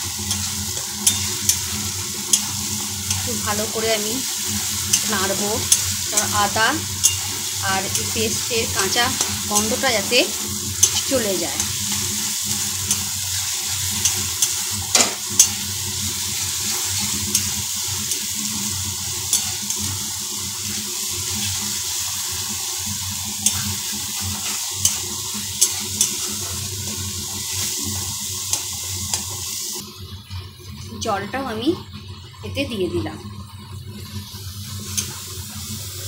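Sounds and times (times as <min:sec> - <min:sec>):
paste sizzling in hot oil: 0:00.0 - 0:32.0, 0:32.6 - 0:36.0
spatula stirring and scraping: 0:00.1 - 0:22.4, 0:23.1 - 0:29.8
spatula clicking against pan: 0:14.0 - 0:14.6.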